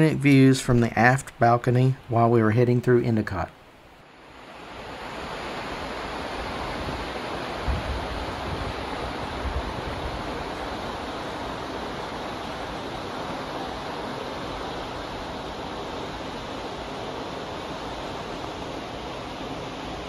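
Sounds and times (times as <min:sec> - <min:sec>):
water rushing in ship wake: 0:03.9 - 0:20.0
wind buffeting microphone: 0:05.9 - 0:16.1.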